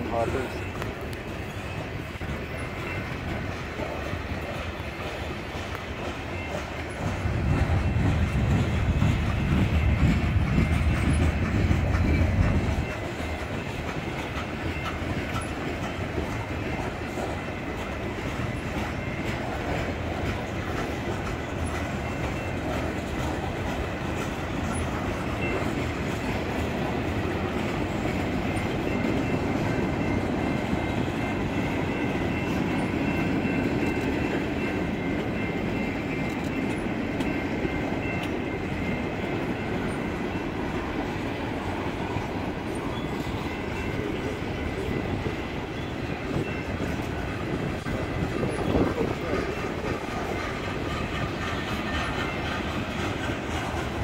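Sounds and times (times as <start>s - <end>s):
freight train wheels clattering: 0.0s - 54.0s.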